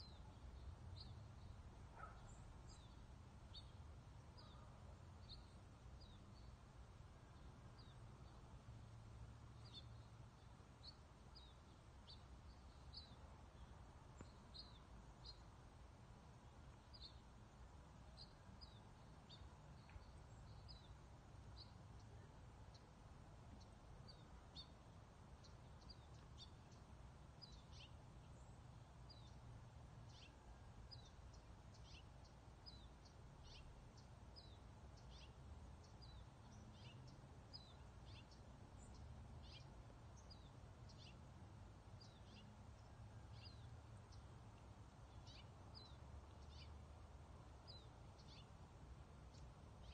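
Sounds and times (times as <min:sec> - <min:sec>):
faint bird chirps: 0:00.0 - 0:06.6.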